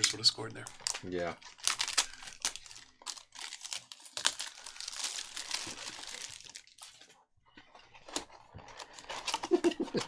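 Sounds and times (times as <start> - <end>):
shrink wrap crinkling: 0.0 - 7.2.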